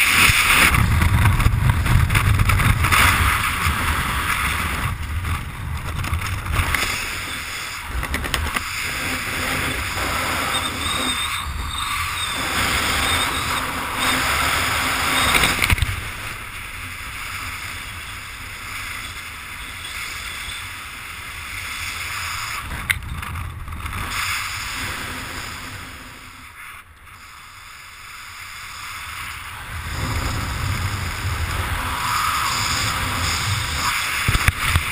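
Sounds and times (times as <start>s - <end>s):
wind buffeting microphone: 0.0s - 21.3s.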